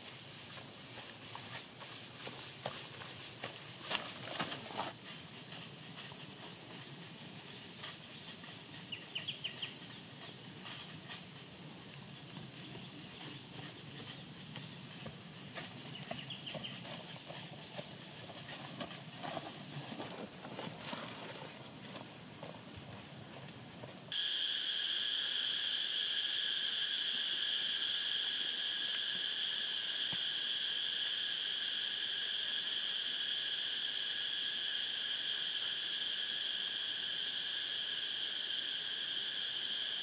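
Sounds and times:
feet brushing through undergrowth: 0.0s - 24.2s
footsteps on forest trail: 0.0s - 24.2s.

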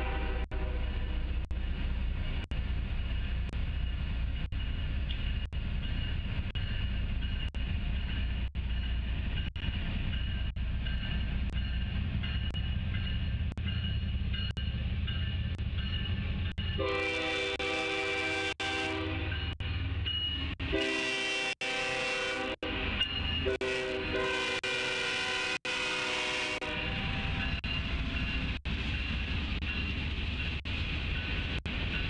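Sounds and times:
train rolling rumble: 0.0s - 32.0s.

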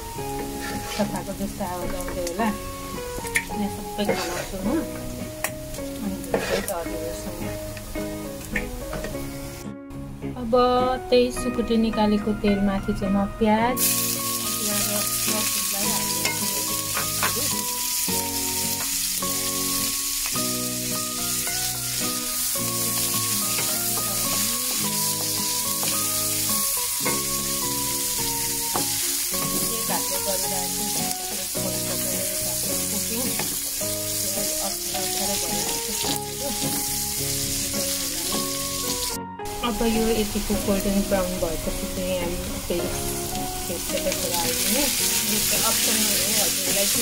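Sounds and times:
onions sizzling in hot oil: 0.0s - 9.7s, 13.8s - 47.0s
wooden spatula stirring in wok: 6.2s - 6.8s.

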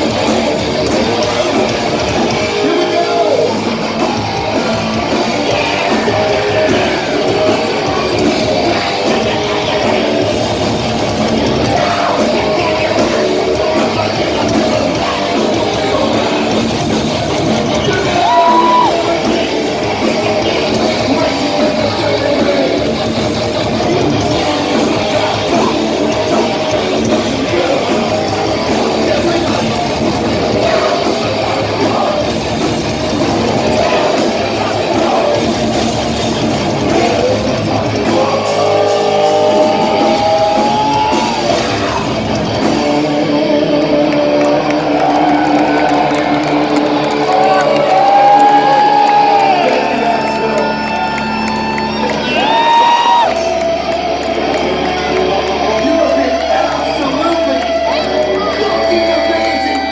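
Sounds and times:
live thrash metal band: 0.0s - 59.9s.

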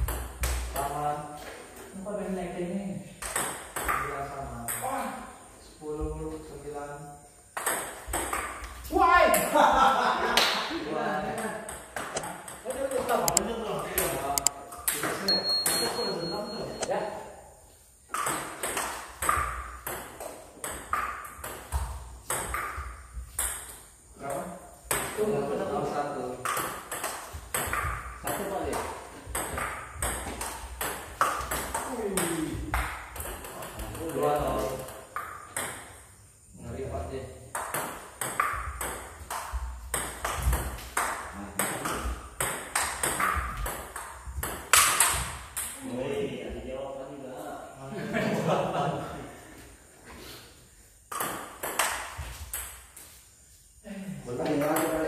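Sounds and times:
ball bouncing on table: 3.2s - 4.9s, 7.6s - 9.5s, 26.4s - 35.9s, 37.5s - 45.8s, 51.1s - 52.8s, 54.6s - 55.0s
ping pong ball clicking on paddles: 3.2s - 5.0s, 7.5s - 9.5s, 11.3s - 17.0s, 18.1s - 23.9s, 26.3s - 36.0s, 37.5s - 45.8s, 51.1s - 53.0s, 54.5s - 55.0s
table tennis ball clicking: 11.7s - 13.5s.

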